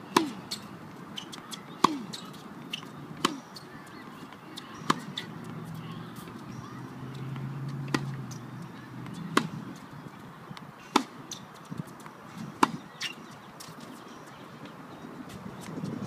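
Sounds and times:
racket hitting tennis balls: 0.1s - 9.9s, 10.8s - 13.2s.

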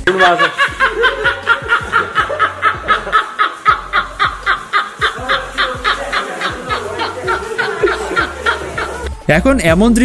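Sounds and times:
men laughing hard: 0.0s - 9.2s.

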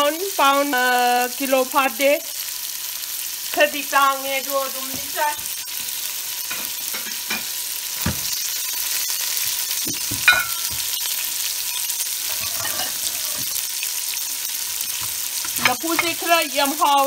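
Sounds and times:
onion sizzling in hot oil: 0.0s - 17.0s
metal clink: 10.3s - 10.7s.

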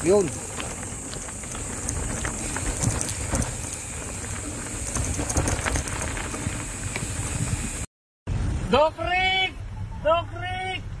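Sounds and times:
bike tyres crunching on gravel: 0.0s - 7.9s.

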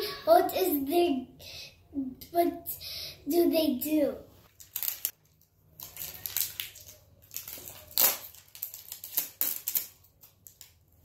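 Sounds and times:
plastic wrapper crinkling: 4.4s - 11.0s.

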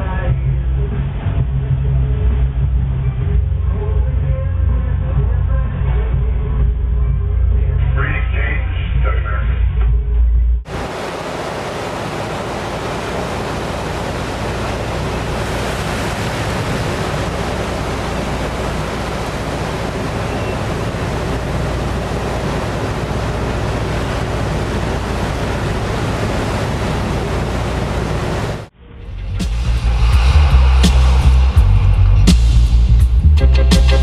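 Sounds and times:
boat engines rumbling: 0.0s - 9.8s, 10.7s - 34.0s
sea washing against hull: 10.7s - 28.7s
wind roaring: 10.7s - 33.4s.

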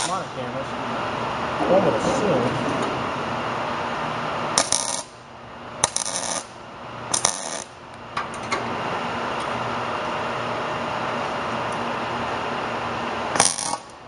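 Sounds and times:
welder arc crackling: 4.6s - 5.2s, 5.8s - 7.8s, 13.3s - 14.0s.

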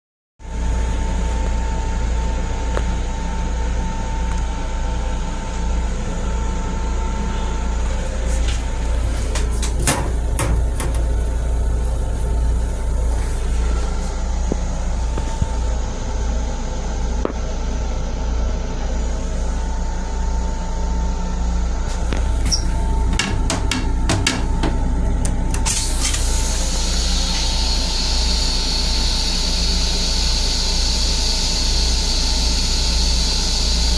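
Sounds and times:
train rumble and whine: 0.4s - 33.9s
clattering knocks: 23.1s - 24.8s.

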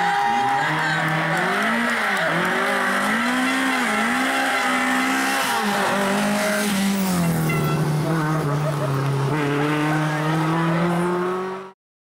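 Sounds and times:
tyres squealing on tarmac: 0.1s - 8.0s
car engine revving: 0.4s - 11.8s.

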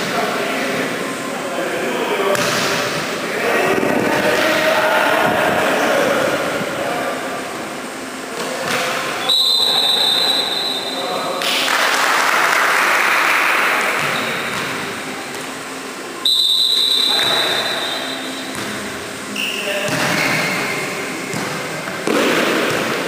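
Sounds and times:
crowd noise: 0.0s - 23.0s
voices echoing in sports hall: 0.0s - 23.0s
referee's whistle blasts: 9.2s - 11.2s, 16.2s - 18.5s, 19.3s - 20.5s.

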